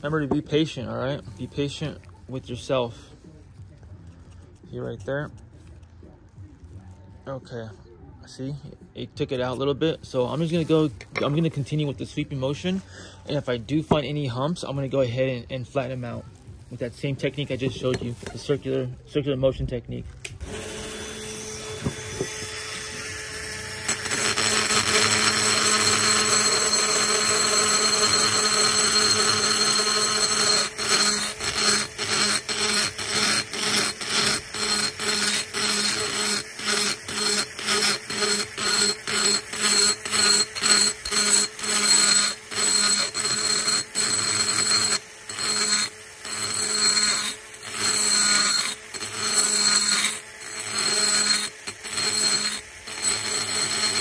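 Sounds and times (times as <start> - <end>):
rotary tool grinding metal: 20.4 - 54.0.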